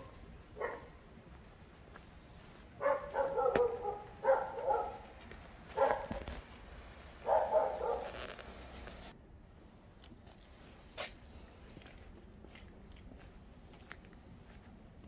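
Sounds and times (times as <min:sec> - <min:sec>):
dog barking: 0:00.0 - 0:01.0, 0:02.8 - 0:06.4, 0:07.2 - 0:08.3.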